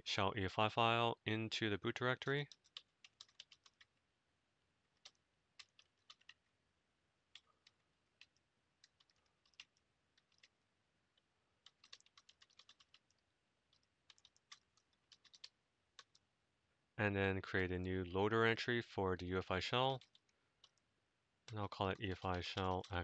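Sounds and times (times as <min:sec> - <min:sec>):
faint keyboard typing: 0:02.2 - 0:04.0, 0:04.8 - 0:06.5, 0:07.3 - 0:16.3, 0:19.7 - 0:23.0.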